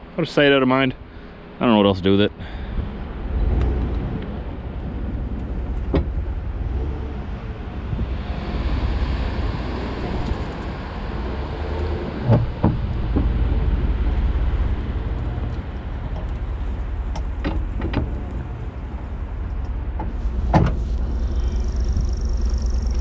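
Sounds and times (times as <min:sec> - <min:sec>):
truck engine low rumble: 0:00.0 - 0:23.0
sharp knocks and clunks: 0:05.4 - 0:06.8, 0:12.2 - 0:18.9, 0:19.6 - 0:20.8.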